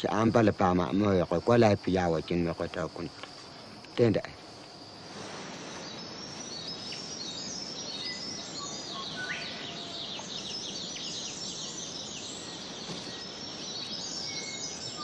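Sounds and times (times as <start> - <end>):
birds chirping: 0.0 - 15.0
steady hiss: 0.0 - 15.0.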